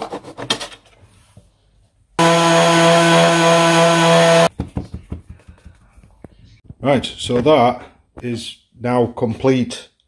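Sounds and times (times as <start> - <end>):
power tool motor on wood: 2.2 - 4.5.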